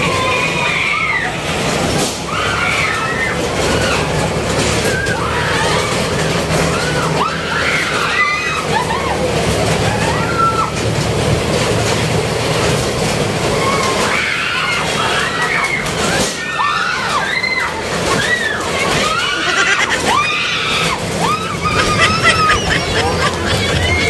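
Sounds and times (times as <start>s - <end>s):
train rumbling: 0.0s - 24.0s
high shrieks: 19.0s - 24.0s.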